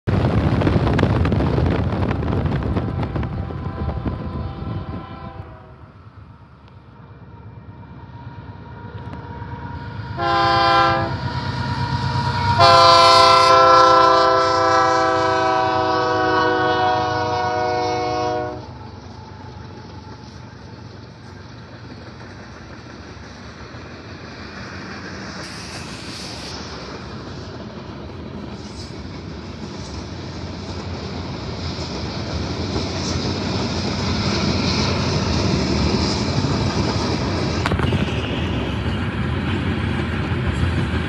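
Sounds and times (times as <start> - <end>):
locomotive air horn blasts: 2.8 - 5.8, 10.2 - 11.2, 12.2 - 18.7
loud rushing noise: 24.1 - 31.4.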